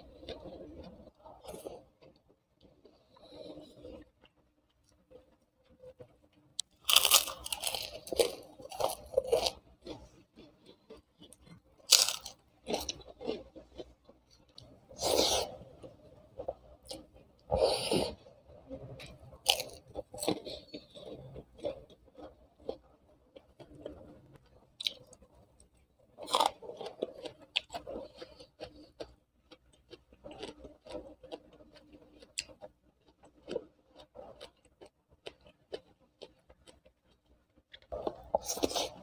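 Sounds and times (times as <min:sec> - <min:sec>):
person chewing with wet smacks: 0:18.9 - 0:39.0.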